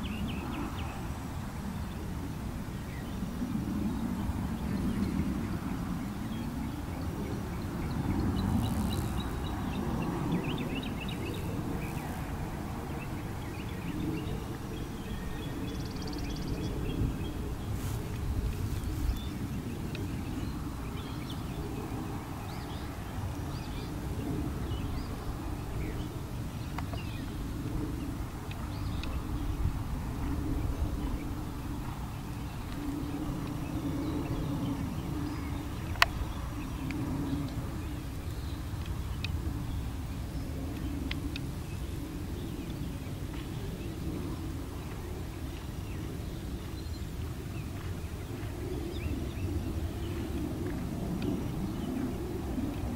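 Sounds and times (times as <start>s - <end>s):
wind rumbling on microphone: 0.0s - 52.9s
small birds chirping: 4.5s - 52.9s
wavering hum: 7.0s - 15.6s.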